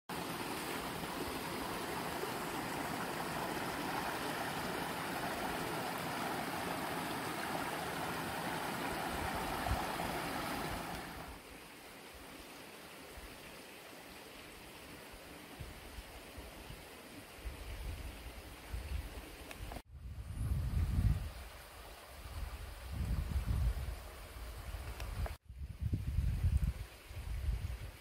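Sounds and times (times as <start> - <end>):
stream rushing over rocks: 0.1 - 17.2.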